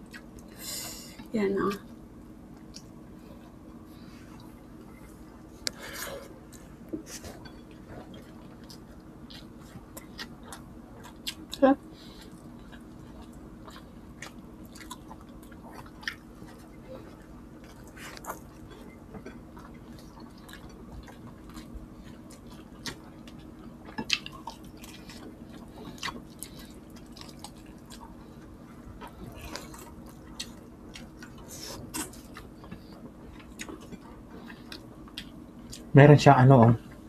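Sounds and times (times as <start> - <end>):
faint steady hum: 0.0 - 37.0
people chewing food: 0.0 - 37.0.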